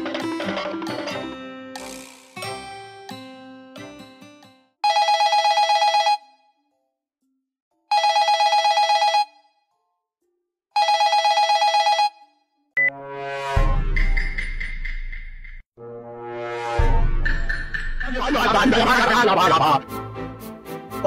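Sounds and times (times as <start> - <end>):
telephone ringing: 4.8 - 6.4, 7.9 - 9.4, 10.8 - 12.4.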